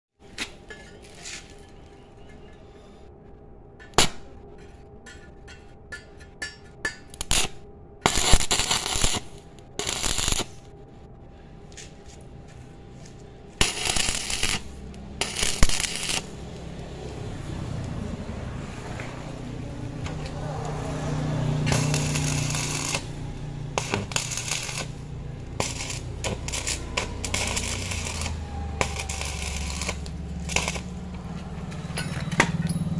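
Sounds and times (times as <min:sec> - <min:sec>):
electrode scratching steel: 0:03.8 - 0:10.7, 0:12.9 - 0:17.8, 0:18.6 - 0:32.5
welding arc crackling: 0:07.1 - 0:10.7, 0:12.9 - 0:17.9, 0:19.2 - 0:31.8.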